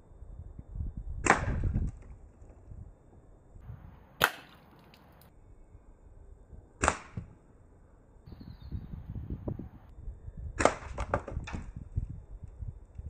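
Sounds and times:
air rifle shots: 0:04.2 - 0:04.9, 0:06.8 - 0:07.3.

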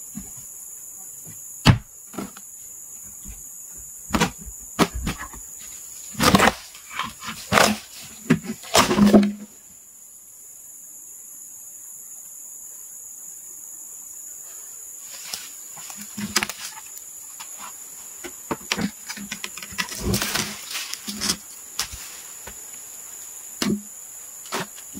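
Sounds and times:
forest insects buzzing: 0:00.0 - 0:24.9
knocks and cracks of wood: 0:04.1 - 0:05.4, 0:06.2 - 0:09.4, 0:15.8 - 0:16.8, 0:18.2 - 0:22.6.

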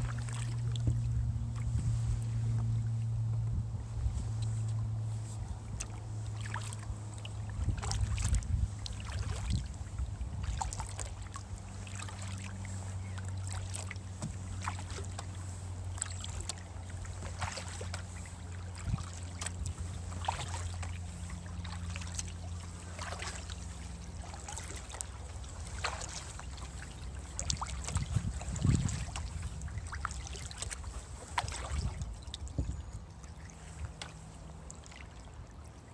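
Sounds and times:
low hum: 0:00.0 - 0:35.9
paddle splashing in water: 0:00.0 - 0:35.9.

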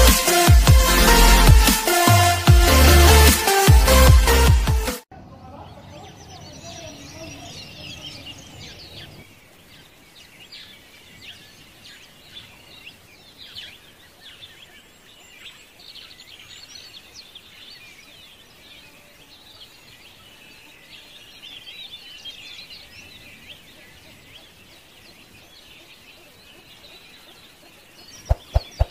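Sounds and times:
music: 0:00.0 - 0:05.0
small birds chirping: 0:05.2 - 0:28.9.

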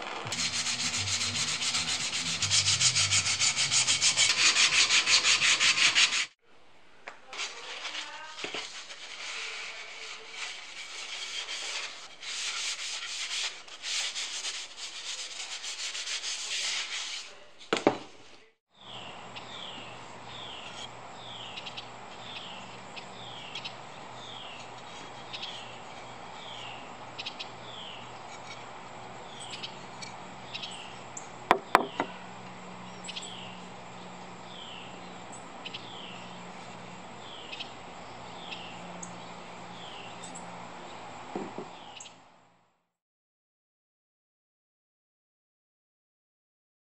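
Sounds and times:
outdoor ambience: 0:00.0 - 0:42.9
paper towel rubbing wooden spoon: 0:00.2 - 0:06.4, 0:07.4 - 0:17.4
thump: 0:41.3 - 0:41.7.

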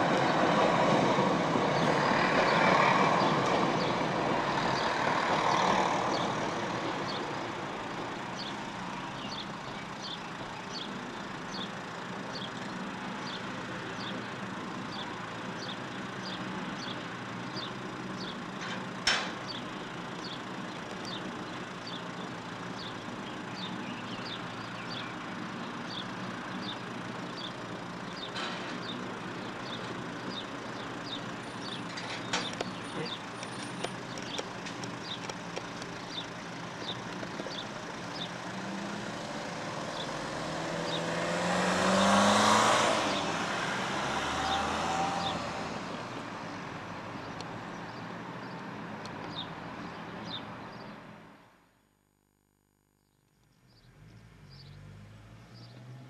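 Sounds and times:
sharp clicks: 0:33.4 - 0:36.1
car driving past: 0:38.2 - 0:46.4, 0:53.7 - 0:56.0.

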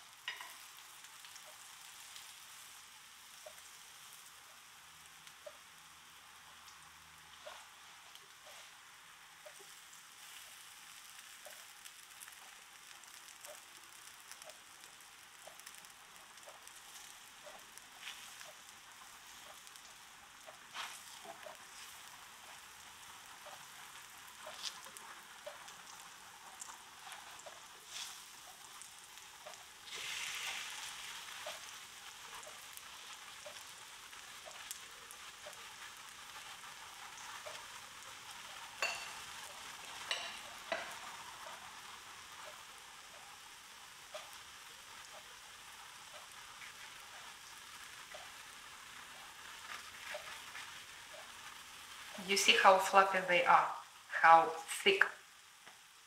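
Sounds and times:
batter sizzling in frying pan: 0:00.0 - 0:56.0.

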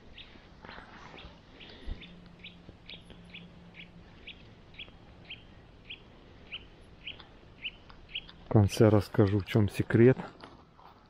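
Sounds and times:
small bird chirping: 0:00.1 - 0:00.4, 0:01.0 - 0:08.6.

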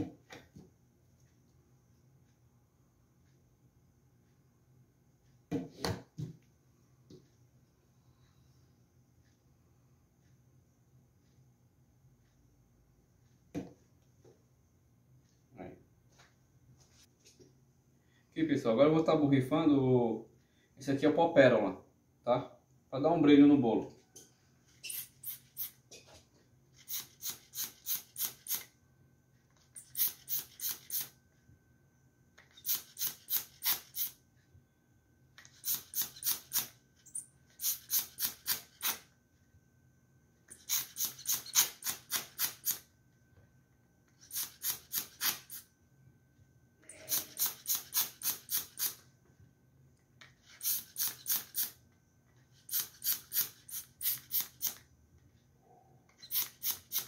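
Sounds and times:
sprayer airy puffs: 0:50.4 - 0:51.7, 0:52.6 - 0:54.8, 0:56.2 - 0:57.0.

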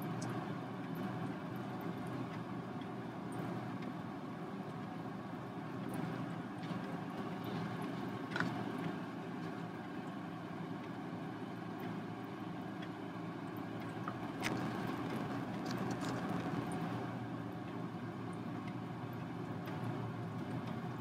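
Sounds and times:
low hum: 0:12.6 - 0:21.0.

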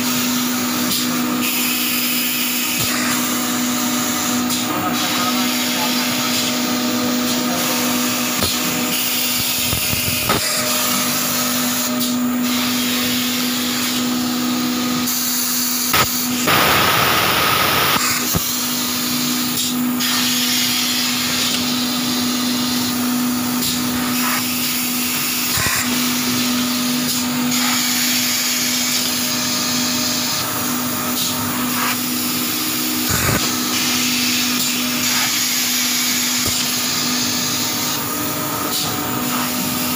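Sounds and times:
machine motor hum: 0:00.2 - 0:20.0.

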